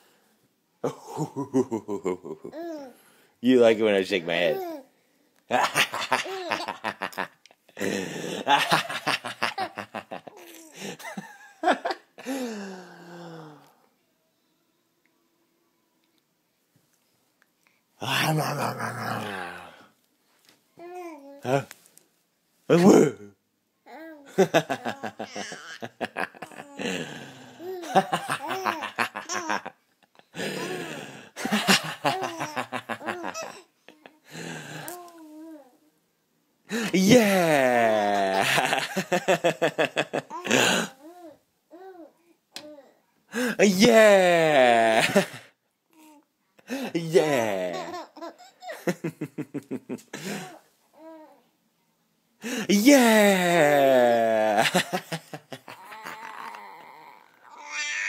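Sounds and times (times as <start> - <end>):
baby boy giggling: 5.5 - 12.0, 24.3 - 35.0, 47.2 - 49.1, 53.8 - 57.2.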